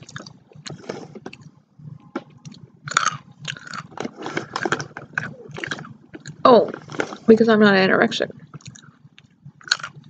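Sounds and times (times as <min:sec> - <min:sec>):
crunchy food chewing: 0:00.0 - 0:01.6, 0:02.4 - 0:07.3, 0:08.5 - 0:10.0.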